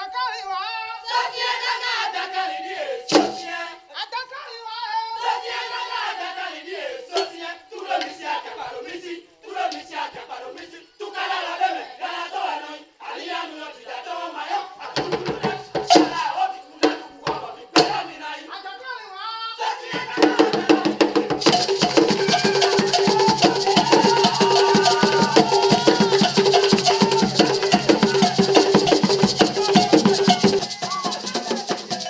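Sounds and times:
group singing and chanting: 0.0 - 32.0
sharp percussion strikes: 3.1 - 3.8, 15.1 - 18.1, 20.3 - 32.0.

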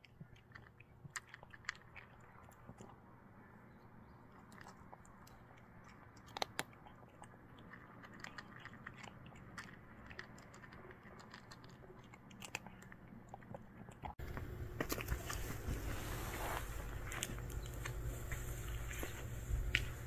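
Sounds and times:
cat crunching dry kibble: 0.0 - 3.1, 4.2 - 20.0.

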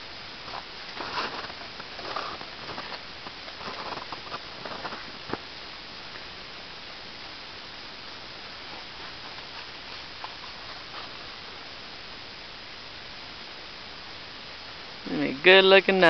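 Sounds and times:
steady hiss: 0.0 - 16.0
footsteps crunching in snow: 0.4 - 5.5, 8.5 - 11.6.

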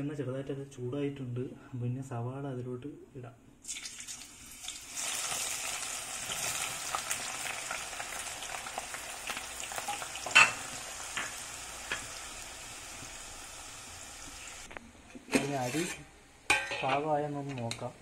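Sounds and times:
onions sizzling in oil: 3.7 - 14.7.

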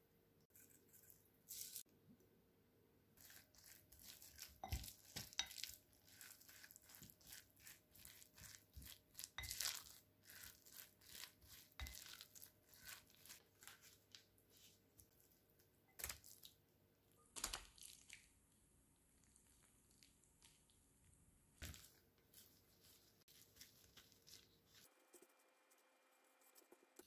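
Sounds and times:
spoon scraping glass bowl: 3.2 - 13.4.

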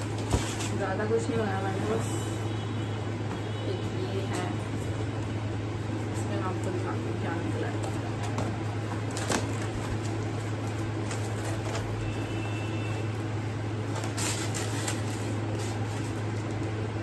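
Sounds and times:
cardboard and paper rustling: 0.0 - 1.1, 7.4 - 12.4, 13.8 - 16.8
steady low hum: 0.0 - 17.0.

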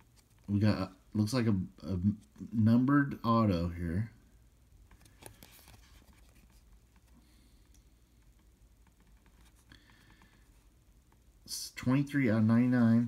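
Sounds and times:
trading cards being handled: 4.9 - 10.5.

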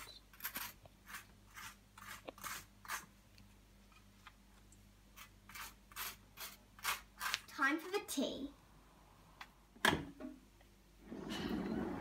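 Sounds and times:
knife scraping butter on toast: 0.0 - 3.1, 5.2 - 7.4.

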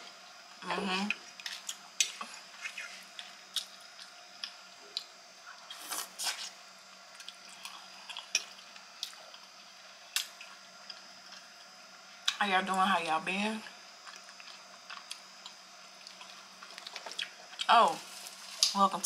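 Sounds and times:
person chewing food: 1.3 - 11.6, 14.0 - 17.7.

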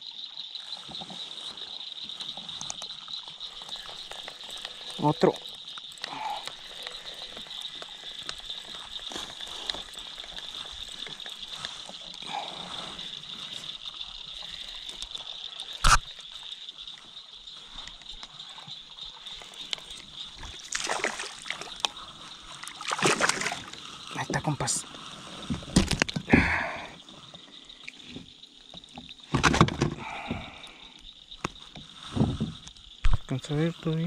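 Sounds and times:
high insect drone: 0.0 - 34.0
fish splashing at surface: 20.6 - 21.9, 22.6 - 23.8.

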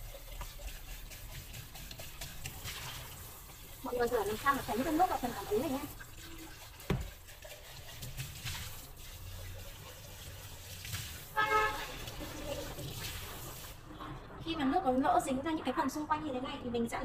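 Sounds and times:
tap water spraying into sink: 0.0 - 13.8
knock: 6.9 - 7.1
horn-like toot: 11.4 - 12.0.

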